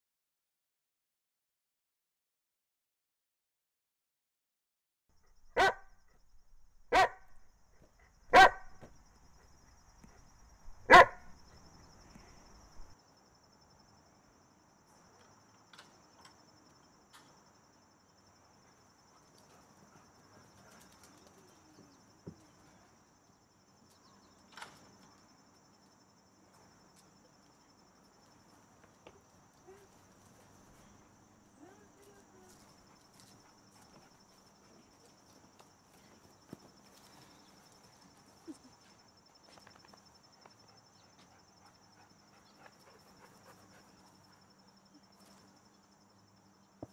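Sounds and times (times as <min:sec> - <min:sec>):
dog barking: 0:05.6 - 0:06.0, 0:06.9 - 0:07.4, 0:08.3 - 0:08.9, 0:10.9 - 0:11.4.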